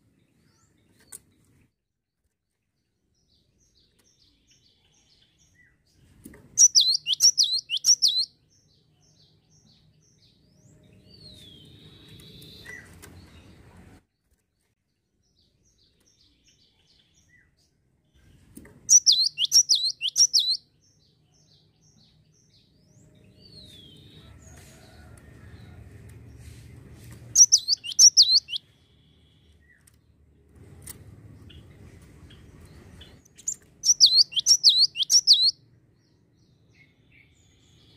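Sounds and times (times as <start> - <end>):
bird sharp rapid notes: 27.4 - 28.6.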